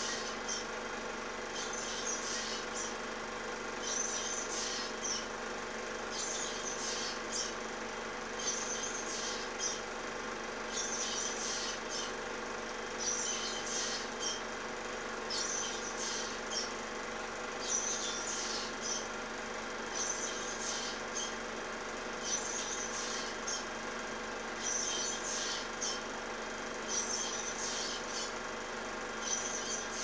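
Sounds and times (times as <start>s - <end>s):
bird chirping: 1.6s - 2.9s, 6.1s - 7.5s, 8.4s - 9.8s, 10.7s - 12.1s, 13.0s - 14.4s, 15.3s - 16.8s, 17.6s - 19.1s, 19.9s - 21.3s, 24.6s - 26.0s, 26.9s - 28.3s, 29.2s - 30.0s.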